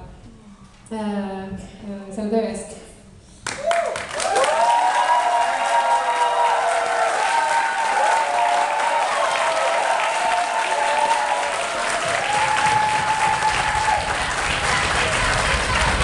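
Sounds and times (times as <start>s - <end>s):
audience applauding: 3.4s - 16.0s
high voices cheering: 3.6s - 16.0s.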